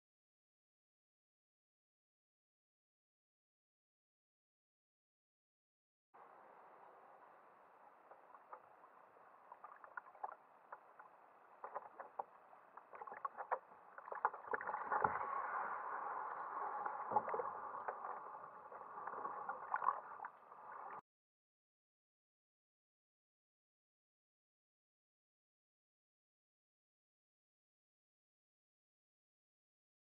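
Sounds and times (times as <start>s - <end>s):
paddle splashing water: 8.0s - 21.0s
water sloshing: 8.1s - 21.0s.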